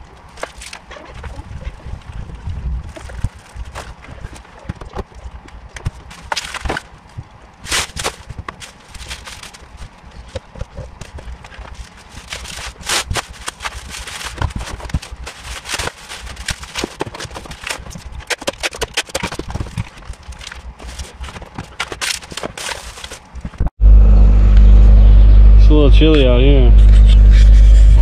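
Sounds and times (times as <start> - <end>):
bubble wrap rustling and crinkling: 0.0 - 23.7
clicks and knocks of objects moved: 7.8 - 23.7.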